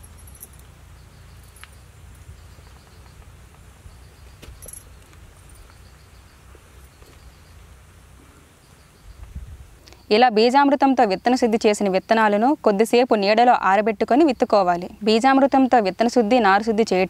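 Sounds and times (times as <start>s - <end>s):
cricket chirping: 0.0s - 12.5s.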